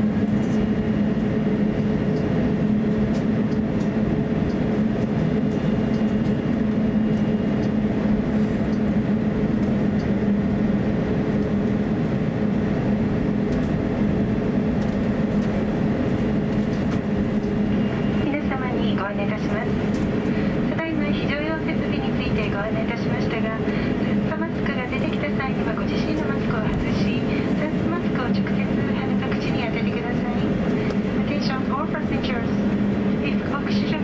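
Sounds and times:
aircraft engines droning in cabin: 0.0 - 34.0.

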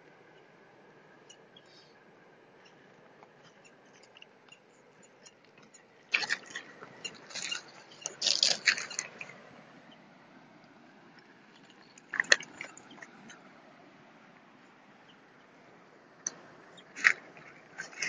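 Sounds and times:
river stones scraping and knocking: 6.1 - 9.4.

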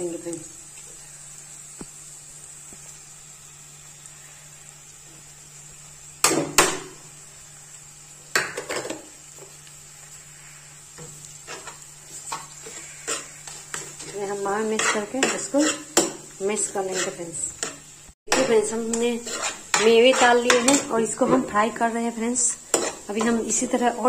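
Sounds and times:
faint sizzle of frying: 0.0 - 24.0.

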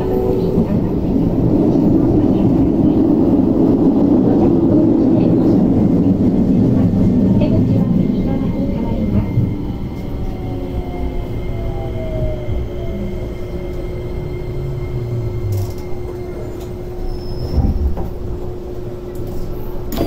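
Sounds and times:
train motor whine: 9.0 - 20.0.

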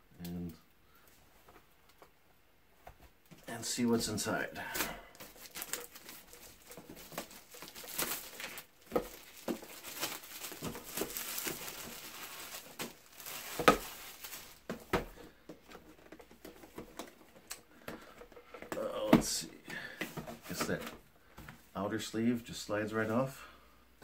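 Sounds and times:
plastic wrapping crinkling: 4.2 - 18.3.

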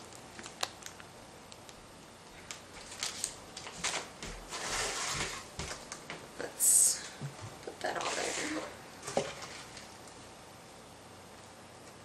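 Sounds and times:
shredded paper rustling: 2.7 - 5.8.

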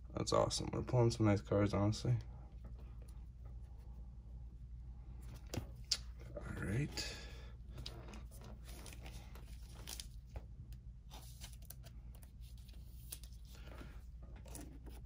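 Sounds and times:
trading cards shuffled: 7.7 - 10.5.

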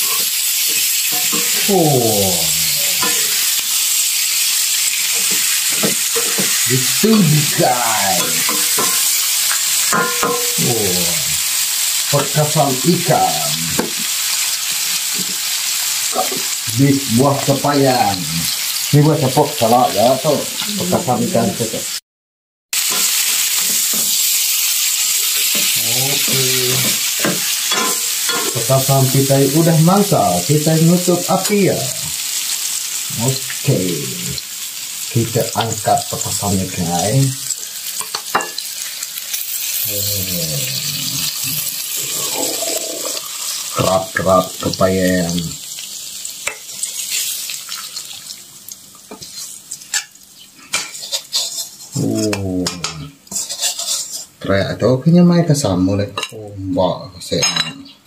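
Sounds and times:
metal spatula stirring: 0.0 - 1.8, 2.6 - 3.8, 4.8 - 10.9, 25.3 - 28.7, 49.1 - 52.4, 53.2 - 54.4
fish sizzling in a wok: 0.0 - 22.0, 22.7 - 54.4
metal clinking on plate: 5.2 - 6.6, 8.2 - 10.6, 27.2 - 28.6.

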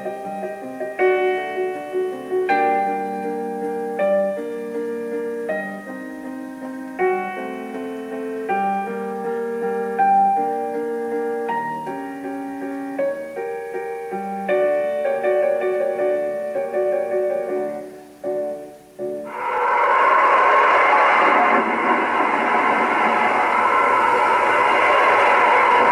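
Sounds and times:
piano music: 0.0 - 25.9
loud steady rushing noise: 14.8 - 25.9.

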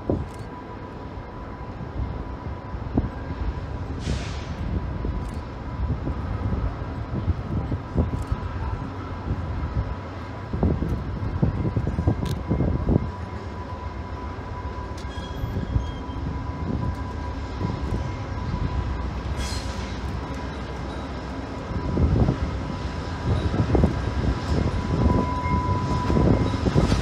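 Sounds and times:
diesel locomotive rumble: 0.0 - 27.0
short hiss: 4.0 - 4.6.

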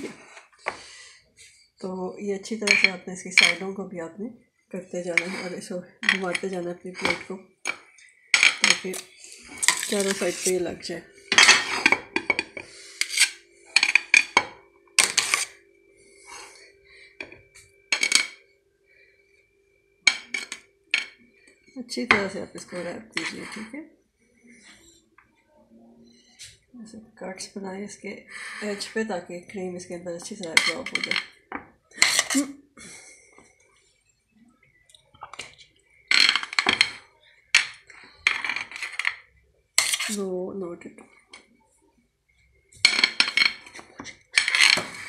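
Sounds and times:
utensil scraping a plate: 8.6 - 14.1, 15.0 - 15.6, 32.0 - 32.5, 39.8 - 40.3.

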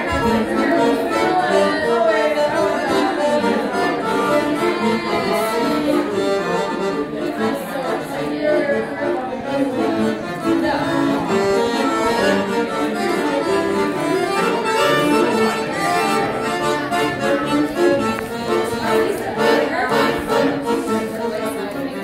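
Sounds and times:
piano accordion riff: 0.0 - 22.0.

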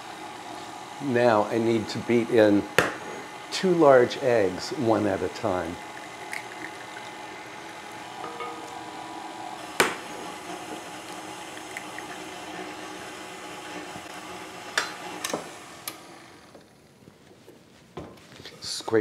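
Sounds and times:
stand mixer running: 0.0 - 16.7
glass clinks: 8.2 - 8.7.

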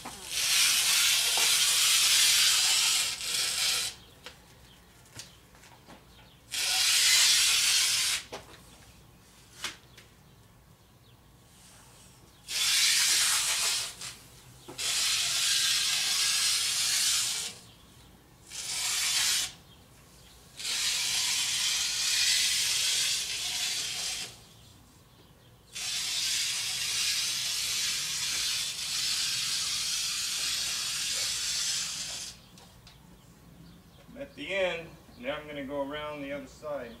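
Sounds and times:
masking tape pulled off roll: 0.0 - 4.1, 6.5 - 8.6, 9.4 - 9.9, 12.4 - 17.7, 18.4 - 19.6, 20.5 - 24.5, 25.7 - 32.6.

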